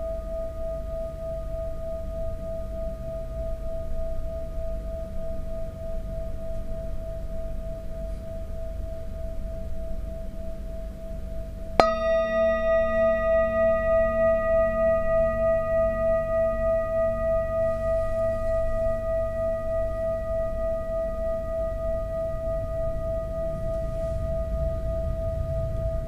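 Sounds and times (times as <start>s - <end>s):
metal singing bowl ringing: 11.8s - 26.0s.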